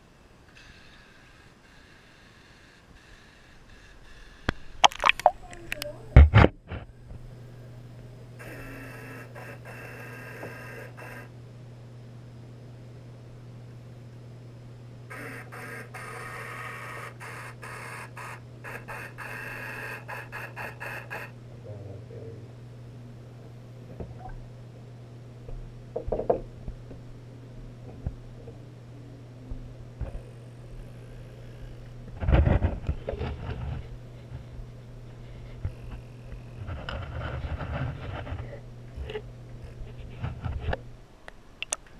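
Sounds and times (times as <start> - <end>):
steady low hum: 0.0 - 41.9
small electric motor whirring underwater: 8.4 - 11.3, 15.1 - 21.4.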